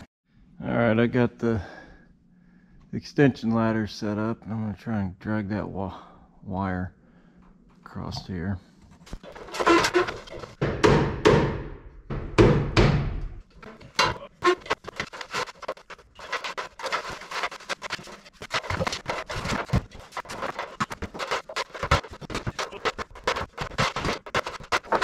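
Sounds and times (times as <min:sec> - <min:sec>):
ladder scraping on wooden rafters: 0:09.0 - 0:10.6, 0:13.6 - 0:25.0.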